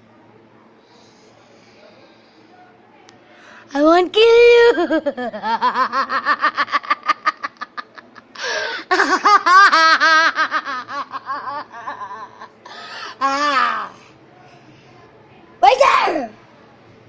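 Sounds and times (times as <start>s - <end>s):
girl laughing: 4.6s - 12.6s.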